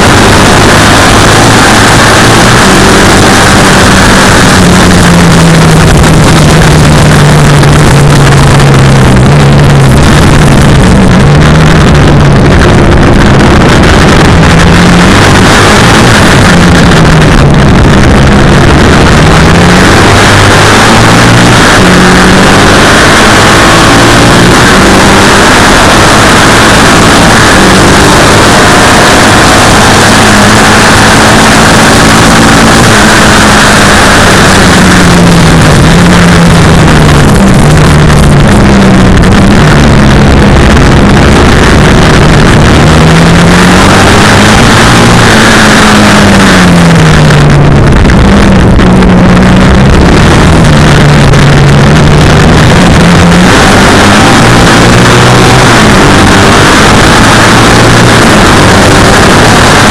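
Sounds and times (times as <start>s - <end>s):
racing engine at full throttle: 0.0s - 59.9s
wind and road noise: 0.0s - 59.9s.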